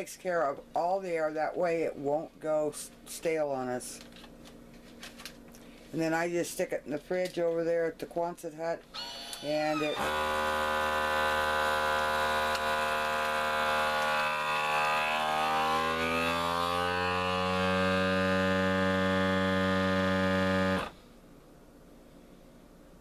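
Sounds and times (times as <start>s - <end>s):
vacuum sealer pump humming: 8.9s - 21.2s.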